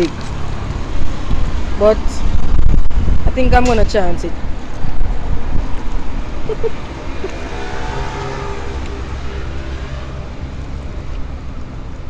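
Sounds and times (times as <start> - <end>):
vehicle driving by: 4.5 - 12.0.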